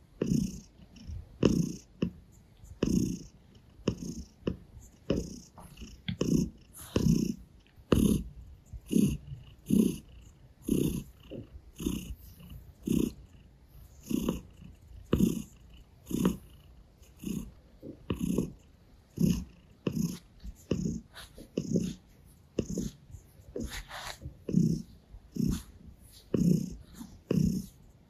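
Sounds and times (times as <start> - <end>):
cat purring: 0.0 - 28.0.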